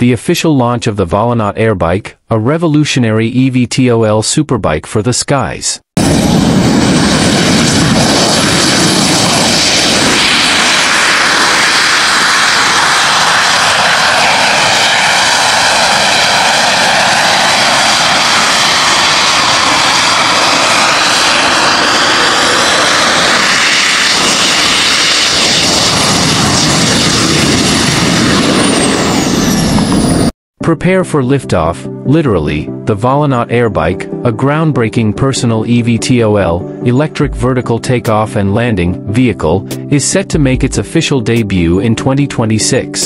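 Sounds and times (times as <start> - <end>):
jet turbine roar with whine: 6.0 - 30.3.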